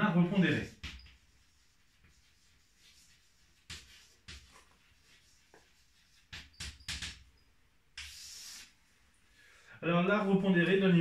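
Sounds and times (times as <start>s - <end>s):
chalk tapping and scraping: 0.3s - 7.4s, 8.0s - 9.0s.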